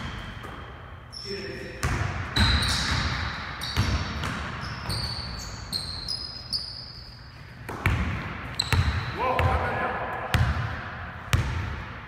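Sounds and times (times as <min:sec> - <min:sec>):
sneaker squeaks: 0:00.0 - 0:09.2
basketball bouncing on wooden floor: 0:01.8 - 0:05.4, 0:07.7 - 0:09.6, 0:10.3 - 0:11.8.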